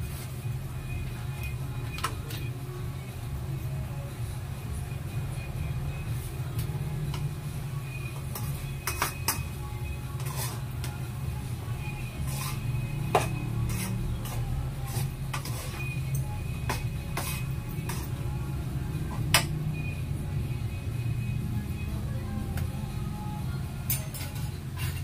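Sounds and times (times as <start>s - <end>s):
steady low hum: 0.0s - 25.0s
spatula scraping frying pan: 8.2s - 10.9s, 11.8s - 18.2s, 23.9s - 25.0s.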